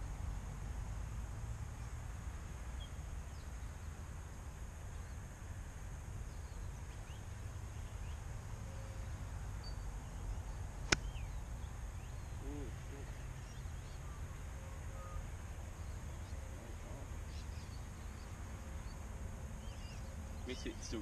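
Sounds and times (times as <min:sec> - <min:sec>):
bird chirps: 0:06.3 - 0:19.0, 0:19.6 - 0:21.0
golf club striking ball: 0:10.9 - 0:11.1.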